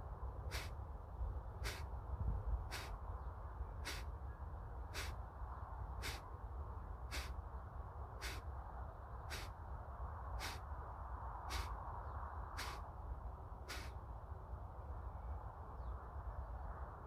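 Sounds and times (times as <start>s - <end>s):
forceful nasal exhalations: 0.5s - 0.7s, 1.6s - 1.8s, 2.7s - 2.9s, 3.8s - 4.1s, 5.0s - 5.2s, 6.0s - 6.2s, 7.1s - 7.3s, 8.2s - 8.4s, 9.3s - 9.5s, 10.4s - 10.6s, 11.5s - 11.8s, 12.6s - 12.8s, 13.7s - 13.9s.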